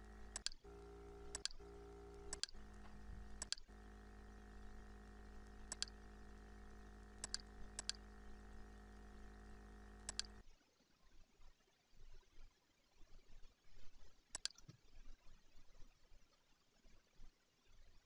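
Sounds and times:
faint electrical hum: 0.0s - 12.5s.

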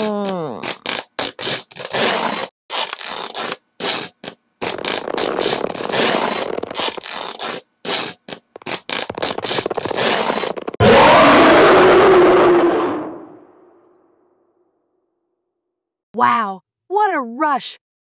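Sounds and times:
cloth ripping: 0.1s - 10.8s.

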